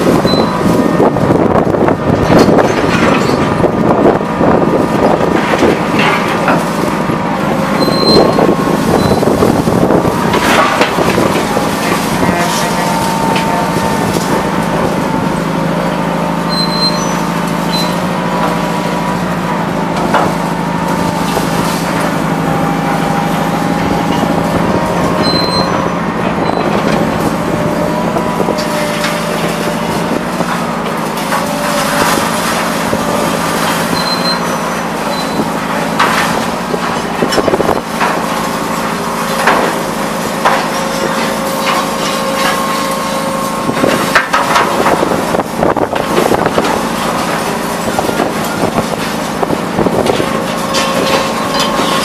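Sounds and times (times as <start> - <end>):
heavy machinery droning: 0.0 - 52.0
scrap metal clanks: 50.0 - 52.0.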